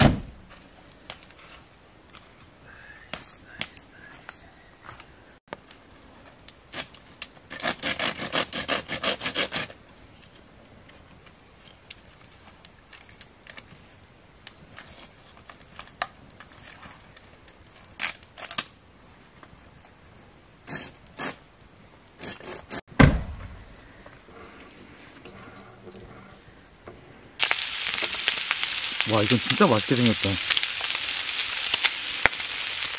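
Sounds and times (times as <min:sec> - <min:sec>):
saw cutting wood: 0:07.5 - 0:09.7.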